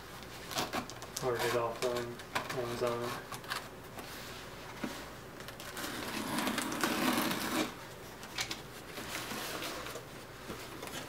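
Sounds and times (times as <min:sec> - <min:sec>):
knife slicing packing tape: 0:05.7 - 0:07.8.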